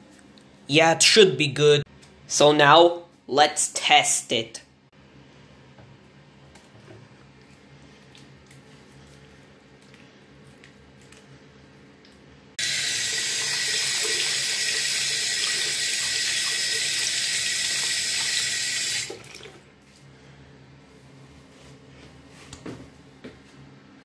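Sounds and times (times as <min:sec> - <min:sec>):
tap water running onto hands: 0:12.6 - 0:19.6.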